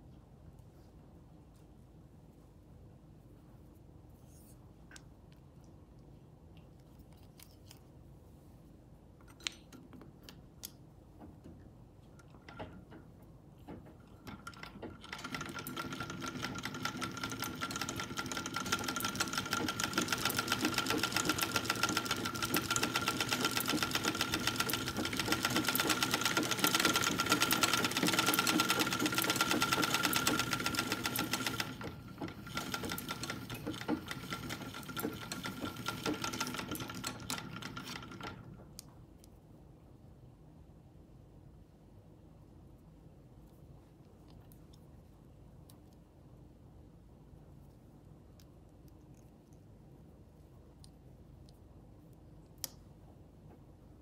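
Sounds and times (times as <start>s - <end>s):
sewing machine whirring: 13.7s - 38.6s.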